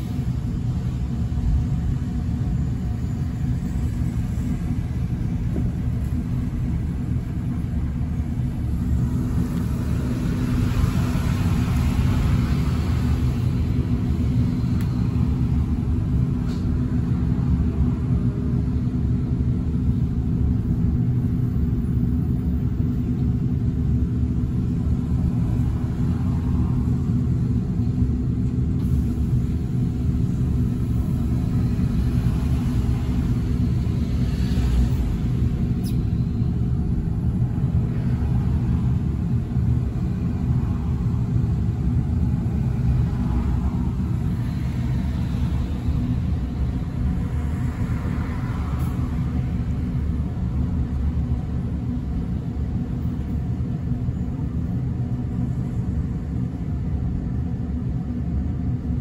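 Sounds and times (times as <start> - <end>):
bus interior rumble and hum: 0.0 - 59.0
cars passing: 2.8 - 18.3, 24.5 - 56.1.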